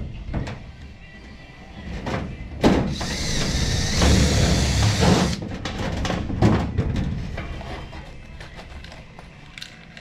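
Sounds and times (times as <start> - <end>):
cordless drill boring metal: 2.9 - 5.4.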